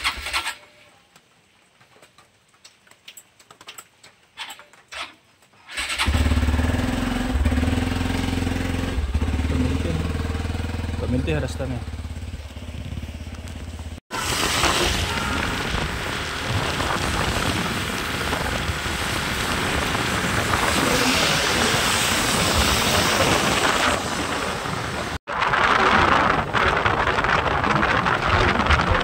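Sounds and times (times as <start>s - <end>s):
wind and wet-road noise: 1.2s - 29.0s
motorcycle engine idling: 6.0s - 14.0s.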